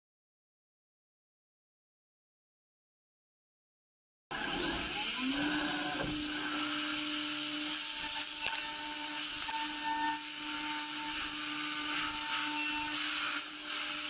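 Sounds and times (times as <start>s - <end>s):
machine spindle whining: 4.3s - 14.0s
metal cutting hiss: 4.6s - 14.0s.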